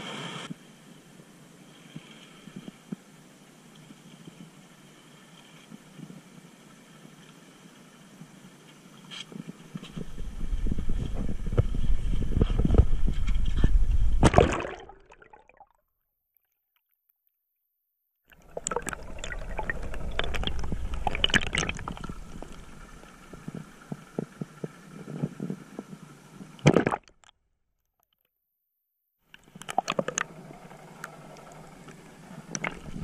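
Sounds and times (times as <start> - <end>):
muffled water sloshing and gurgling: 9.3 - 15.8, 18.3 - 27.4, 29.4 - 33.0.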